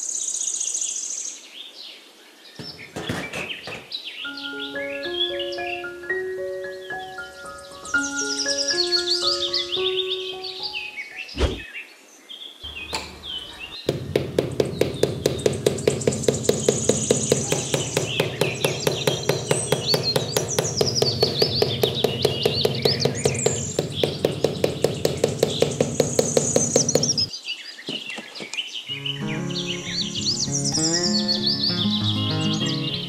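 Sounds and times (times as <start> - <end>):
birds chirping: 2.4 - 33.0.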